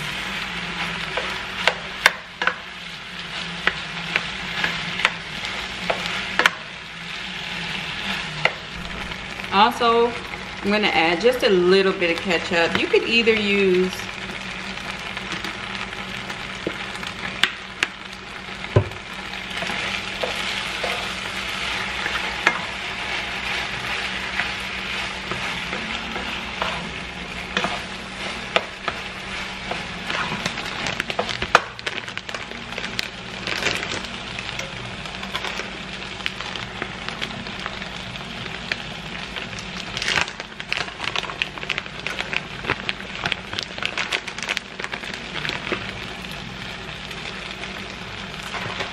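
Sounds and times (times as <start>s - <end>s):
meat mixture sizzling in a pan: 0.0s - 48.9s
wooden spatula stirring: 18.6s - 33.2s.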